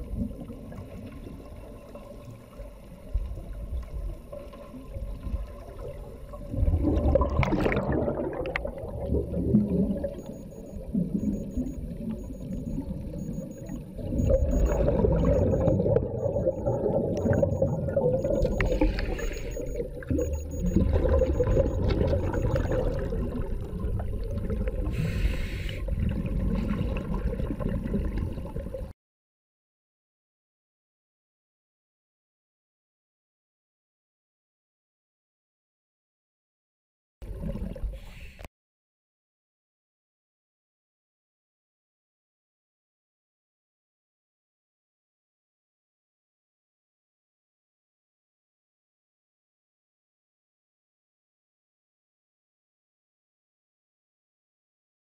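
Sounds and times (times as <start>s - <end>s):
underwater rumble: 0.0s - 28.9s
air bubbles gurgling: 4.2s - 25.0s, 25.9s - 28.9s.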